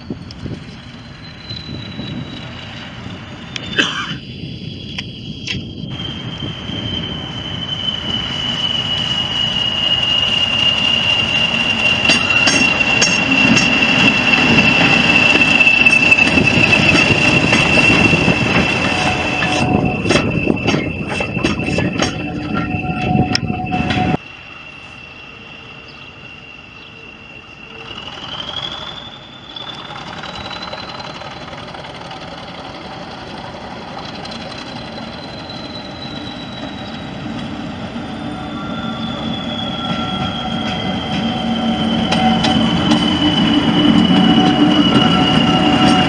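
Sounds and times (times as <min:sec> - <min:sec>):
turbocharger high whistle: 0:00.0 - 0:31.7, 0:34.1 - 0:46.0
locomotive engine rumble: 0:00.0 - 0:46.0
wheels clicking over rail joints: 0:29.8 - 0:35.9.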